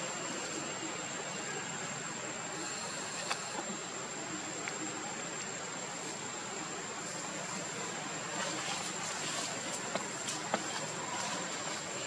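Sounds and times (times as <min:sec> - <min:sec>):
outdoor background hiss: 0:00.0 - 0:12.0
faint clicks: 0:03.1 - 0:03.8.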